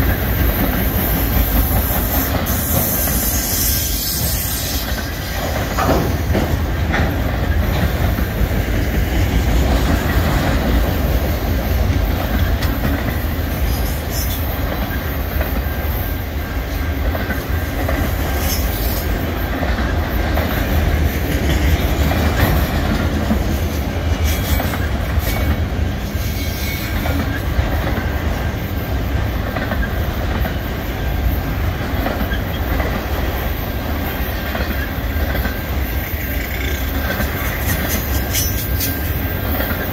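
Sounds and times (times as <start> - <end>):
freight train rolling past: 0.0 - 39.9
wheels clacking over rail joints: 0.0 - 39.9
faint high wheel squeal: 2.1 - 5.3, 24.3 - 27.1, 35.9 - 39.2.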